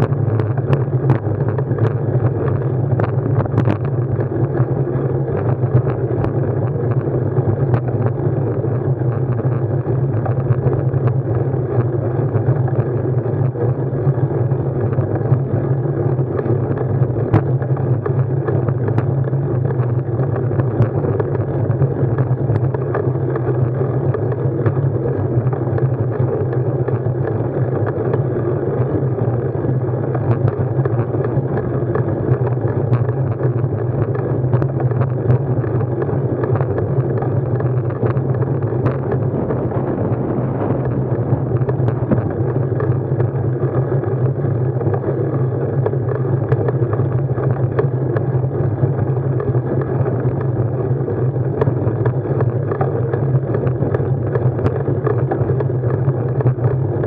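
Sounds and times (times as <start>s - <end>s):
muffled wind and vibration: 0.0s - 57.0s.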